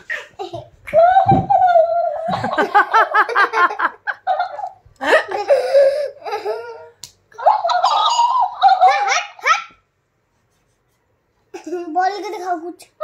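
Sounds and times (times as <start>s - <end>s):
high-pitched giggling laughter: 7.4s - 9.8s.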